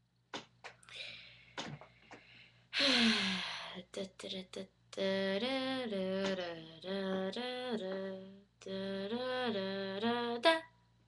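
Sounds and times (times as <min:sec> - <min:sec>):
woman humming: 0:02.8 - 0:04.1, 0:05.0 - 0:10.5.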